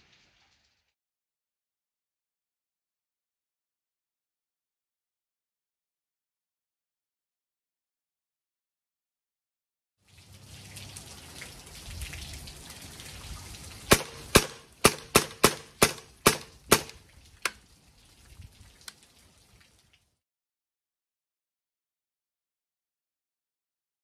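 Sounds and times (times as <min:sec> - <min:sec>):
air rifle shots cracking: 0:13.9 - 0:17.0.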